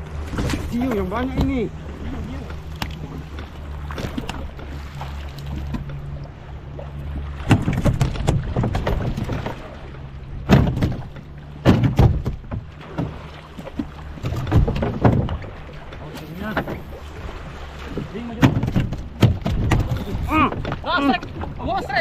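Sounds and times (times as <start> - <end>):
boat engine idling: 0.0 - 22.0
water slapping against hull: 0.0 - 22.0.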